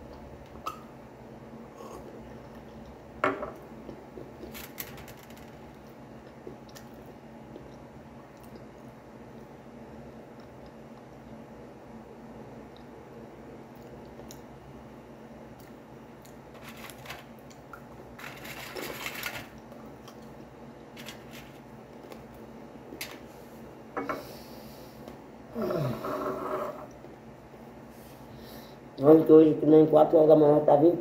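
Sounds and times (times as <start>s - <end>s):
steady low hum: 0.0s - 31.0s.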